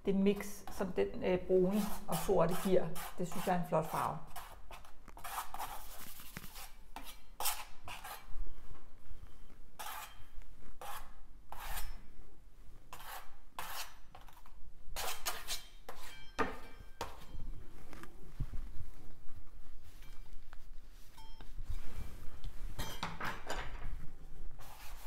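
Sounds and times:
paintbrush scraping on canvas: 1.7s - 8.3s, 24.6s - 25.0s.

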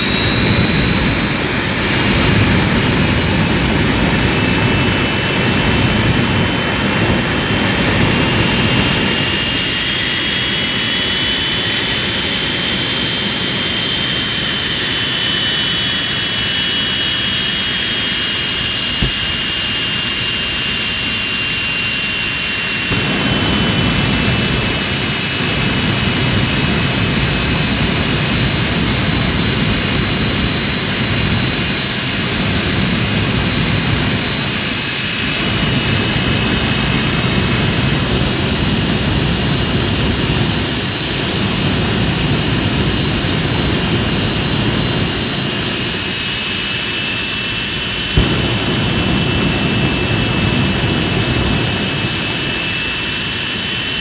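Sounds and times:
jet engine roaring: 0.0s - 54.0s
high whining tones: 15.7s - 30.6s, 47.2s - 53.7s.

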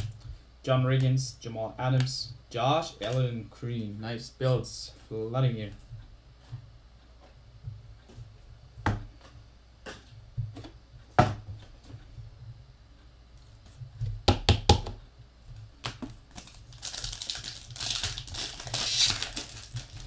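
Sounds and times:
foil wrapper crinkling: 16.0s - 20.0s.

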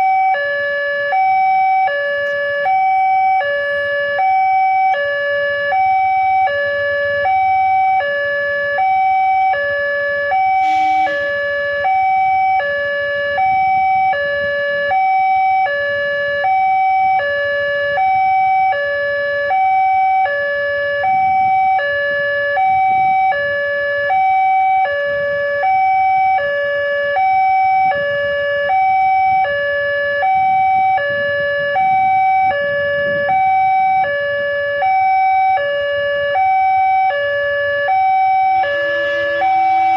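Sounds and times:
level crossing two-tone alarm: 0.0s - 39.9s.

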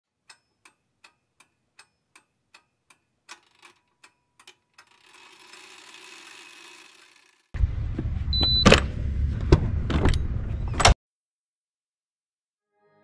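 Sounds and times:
faint regular ticking: 0.2s - 7.5s.

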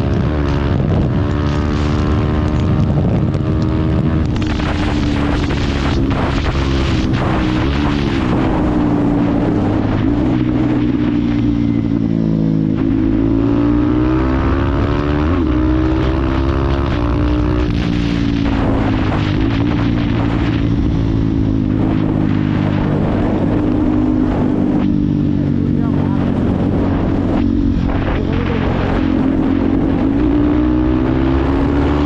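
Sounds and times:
motorcycle engine running hard: 0.0s - 32.0s
wind rushing over microphone: 0.0s - 32.0s.

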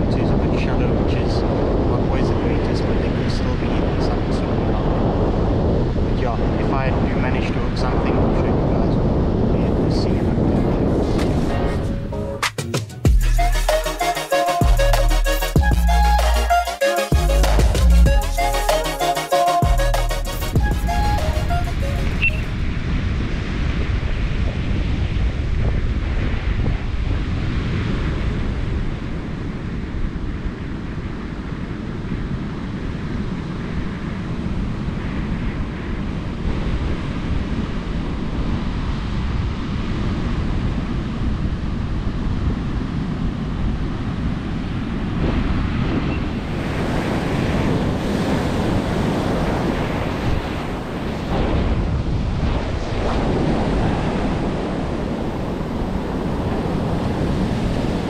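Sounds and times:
wind buffeting microphone: 0.0s - 12.1s, 20.6s - 58.0s
ocean waves breaking: 44.1s - 58.0s.

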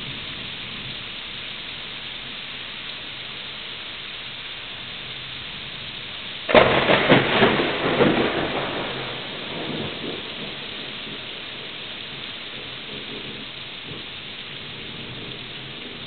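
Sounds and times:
steady rain: 0.0s - 16.0s
thunderclap rumbling: 6.5s - 16.0s.

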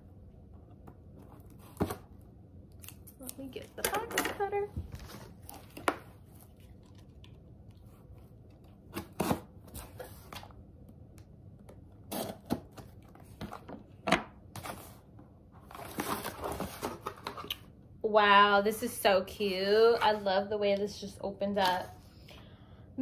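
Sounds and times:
packing tape cut and torn: 12.1s - 12.9s
cardboard rustling: 15.6s - 17.5s.

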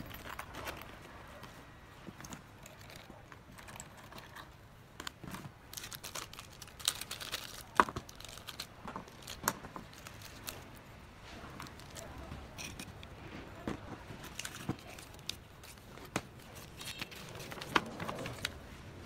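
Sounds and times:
plastic bag crinkling: 5.0s - 13.1s, 13.8s - 18.8s.

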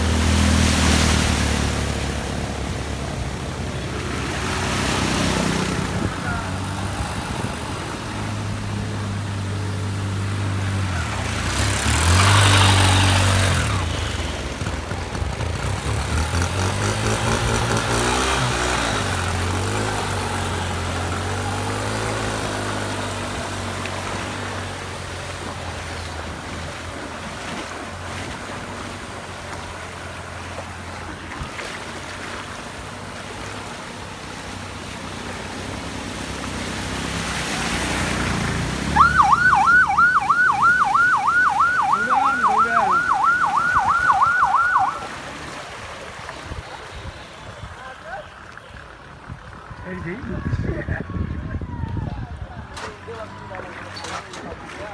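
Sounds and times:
water washing: 0.0s - 49.8s, 52.8s - 54.9s
fast yelping siren: 39.0s - 45.1s.

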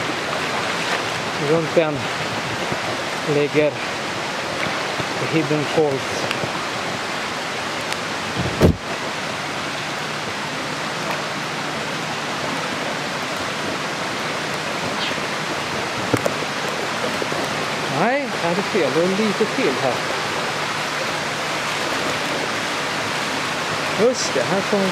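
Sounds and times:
rushing water and waterfall: 0.0s - 24.9s
dull thump: 8.4s - 8.8s.

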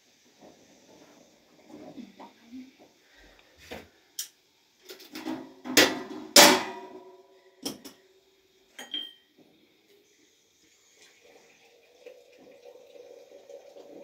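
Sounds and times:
metal kitchenware clanking: 5.1s - 7.0s, 8.8s - 9.2s.

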